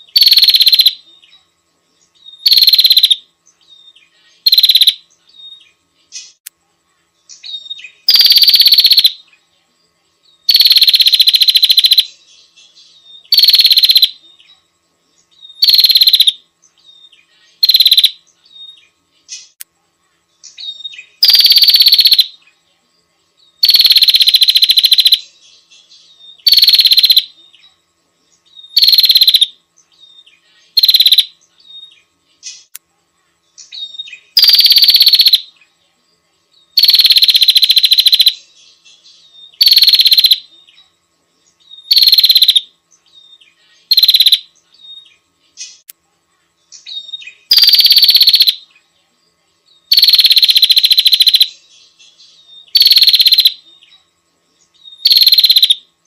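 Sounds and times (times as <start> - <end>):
high-pitched bird calls: 0.0 - 1.0, 2.2 - 3.2, 4.0 - 6.4, 7.4 - 9.2, 10.5 - 14.4, 15.4 - 16.4, 17.0 - 19.6, 20.5 - 22.4, 23.6 - 27.4, 28.6 - 32.7, 33.6 - 35.5, 36.8 - 40.6, 41.6 - 45.9, 46.8 - 48.7, 49.9 - 53.9, 54.8 - 55.8.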